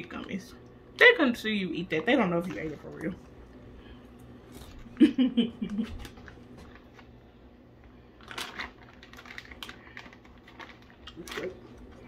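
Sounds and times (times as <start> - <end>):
plastic pouch crinkling: 8.2 - 12.0.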